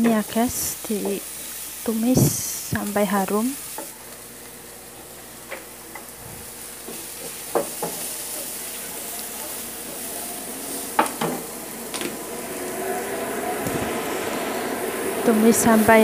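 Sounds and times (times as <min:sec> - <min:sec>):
onion sizzling in hot oil: 0:00.0 - 0:16.0
wooden spatula knocking on pan: 0:07.2 - 0:08.0, 0:11.0 - 0:12.1.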